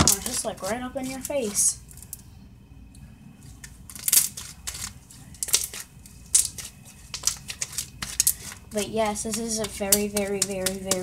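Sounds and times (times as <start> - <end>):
crunchy slime crackling: 3.4 - 11.0.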